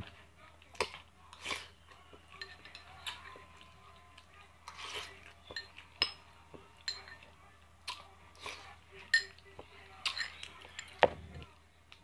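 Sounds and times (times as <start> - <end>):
eating sounds: 0.0 - 12.0
spoon clinking and scraping in bowl: 2.3 - 3.4, 4.7 - 7.3, 8.5 - 11.0.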